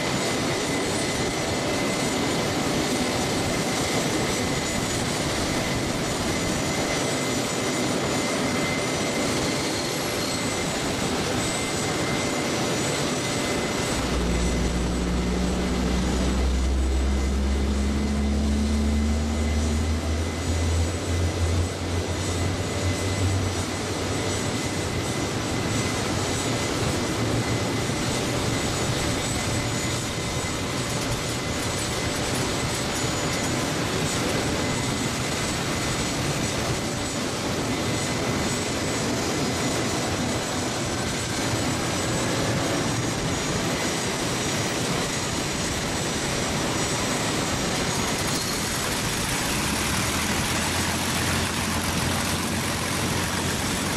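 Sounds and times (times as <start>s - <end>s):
propeller aircraft engine idling: 0.0s - 53.9s.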